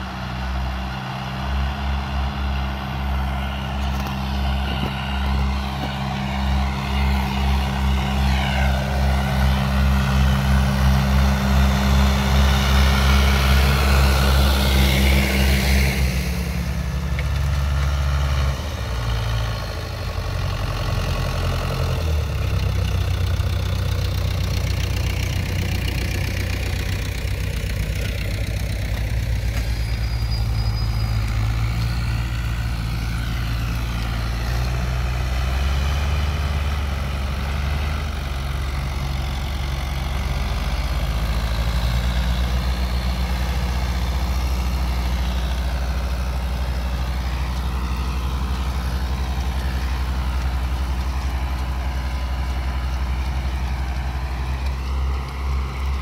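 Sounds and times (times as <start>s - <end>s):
tractor diesel engines running: 0.0s - 56.0s.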